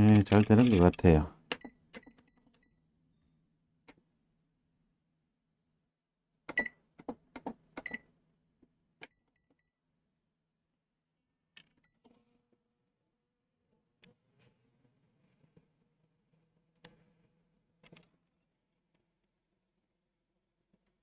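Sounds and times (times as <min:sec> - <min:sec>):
keypad clicks with beeps: 0:06.5 - 0:06.8, 0:07.4 - 0:08.1.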